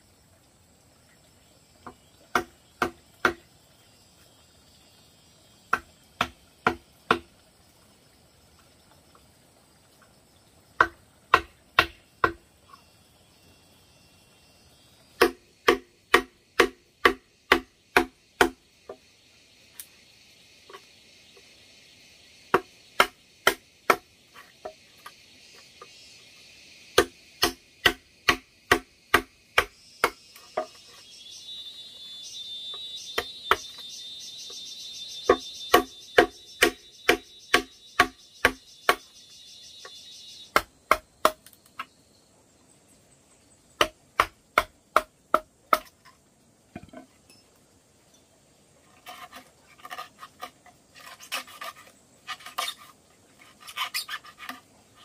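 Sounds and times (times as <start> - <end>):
chisel knocking into bamboo: 2.3 - 3.4, 10.8 - 12.4, 15.2 - 18.6, 35.3 - 39.0
high insect buzz: 9.9 - 42.2, 47.4 - 55.0.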